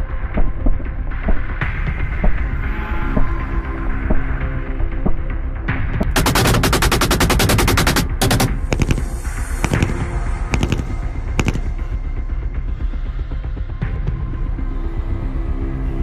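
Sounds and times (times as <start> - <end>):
background music: 0.0 - 16.0
automatic rifle fire: 6.0 - 11.7.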